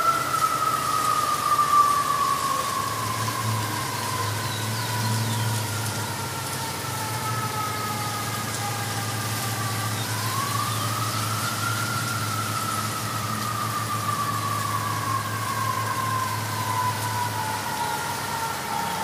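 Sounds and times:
siren wailing: 0.0s - 19.0s.

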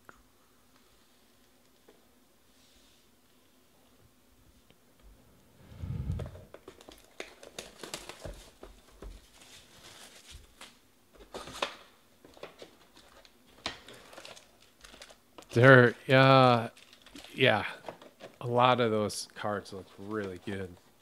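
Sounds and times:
foil packs crinkling: 6.5s - 18.8s, 19.6s - 21.0s.

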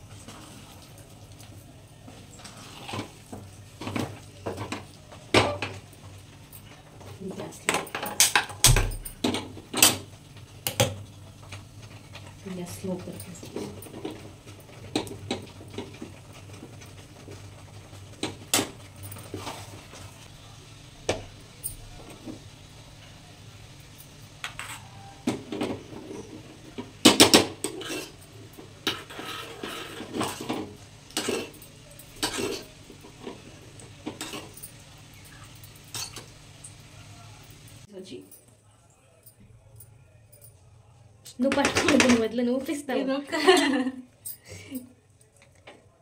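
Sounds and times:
spoon clinking against pots: 24.4s - 33.4s, 34.0s - 36.3s.

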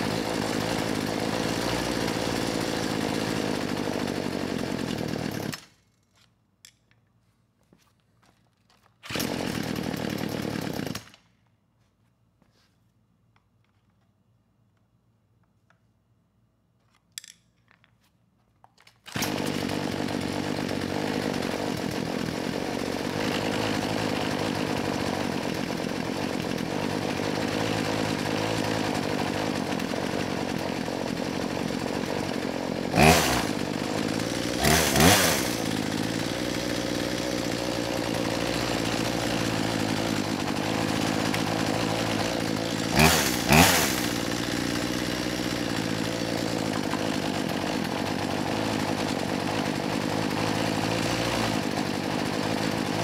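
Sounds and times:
chainsaw engine idling: 0.0s - 5.8s, 9.1s - 11.2s, 19.1s - 53.0s
chainsaw throttle revs: 0.0s - 5.8s, 9.0s - 11.2s, 19.1s - 53.0s.

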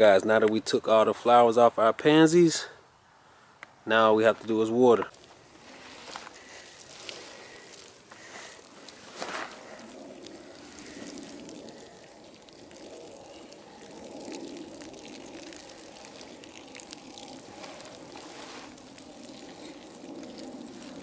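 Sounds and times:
garden hose spraying water: 4.5s - 21.0s.

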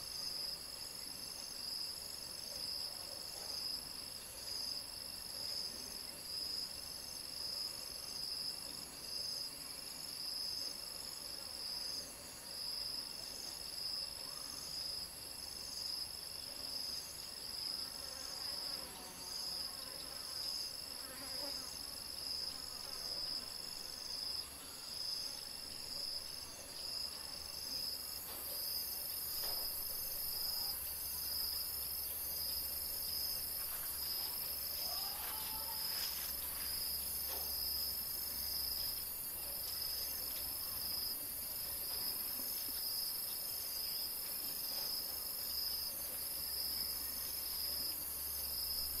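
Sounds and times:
high steady insect hiss: 0.0s - 49.0s.

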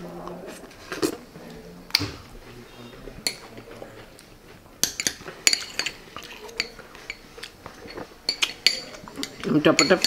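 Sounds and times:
cutlery clinking against plates: 3.2s - 3.8s, 4.8s - 10.0s.

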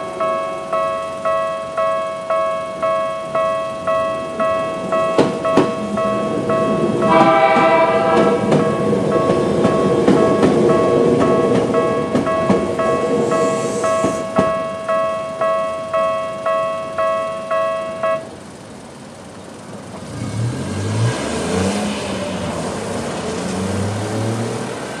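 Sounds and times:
level crossing alarm bell: 0.0s - 18.5s
vehicles driving off: 4.1s - 11.8s, 19.4s - 25.0s
car engines starting: 18.3s - 25.0s.

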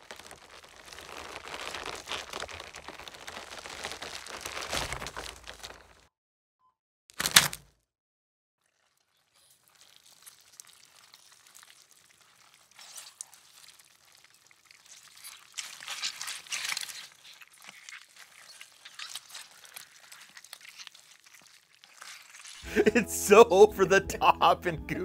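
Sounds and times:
wheezy squelch: 0.0s - 5.4s, 9.3s - 23.0s
wet squishing cloths: 0.0s - 6.0s, 8.6s - 22.8s.

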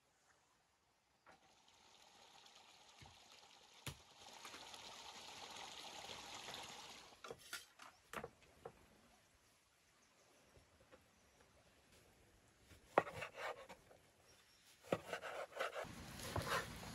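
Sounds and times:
running water: 1.3s - 7.3s.

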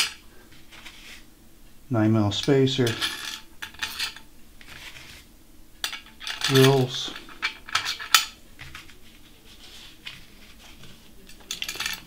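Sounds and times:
metal hardware clicking and clinking: 2.8s - 4.3s, 5.8s - 8.4s, 11.2s - 12.0s.

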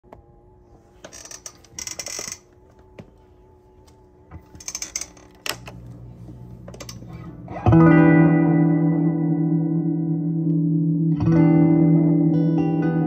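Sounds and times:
handling clicks and rustling: 6.6s - 7.2s
guitar chord with echo: 7.1s - 13.0s.

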